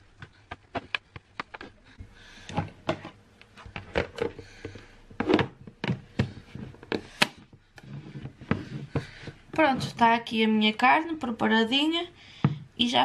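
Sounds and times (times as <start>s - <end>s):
plastic box clicks and knocks: 2.5s - 7.5s.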